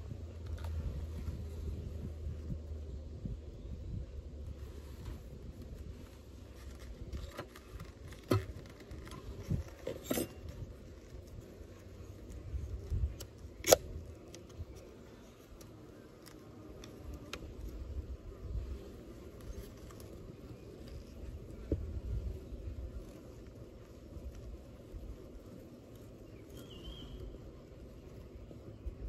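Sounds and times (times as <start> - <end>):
low steady rumble: 0.0 - 7.2
wooden hive frames clicking: 6.7 - 28.8.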